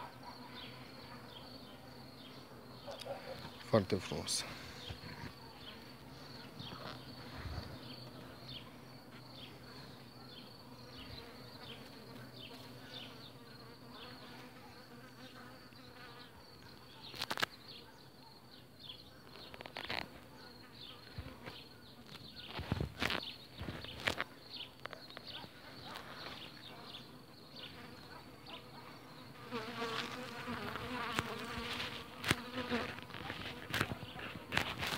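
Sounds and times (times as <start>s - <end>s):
bees buzzing: 26.0s - 34.9s.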